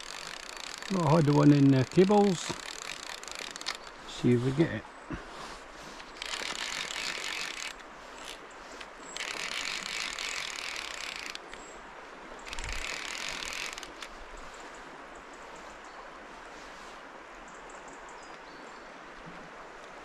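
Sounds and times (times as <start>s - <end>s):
fishing reel drag ratcheting: 0.0s - 4.0s, 6.0s - 11.7s, 12.4s - 14.2s.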